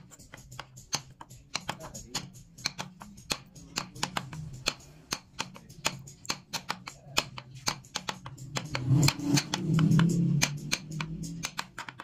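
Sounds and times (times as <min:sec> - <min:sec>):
mallet tapping chisel into wood: 0:00.0 - 0:12.0.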